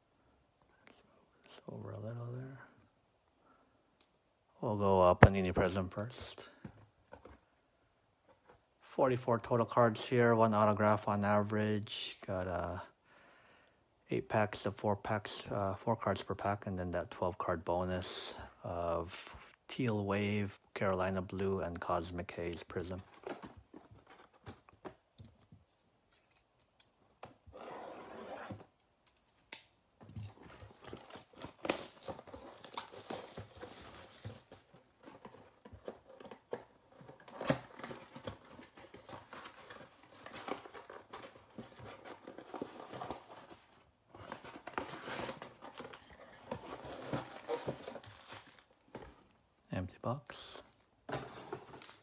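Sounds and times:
shrink wrap tearing and crinkling: 30.6 - 34.5.

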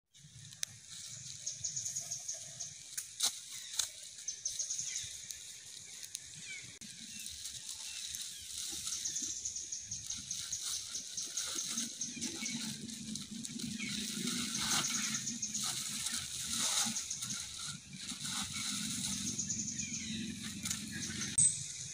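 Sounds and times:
forest ambience: 0.1 - 21.9
low hum: 9.6 - 21.9.

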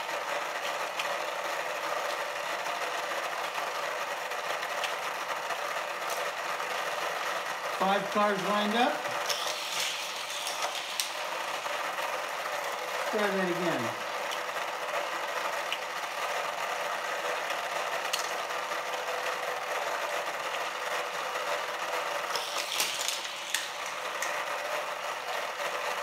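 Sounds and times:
toy cars clicking and knocking: 7.8 - 12.2, 17.5 - 18.4, 22.0 - 26.0
small electric motor whirring: 7.8 - 19.5, 20.3 - 26.0.

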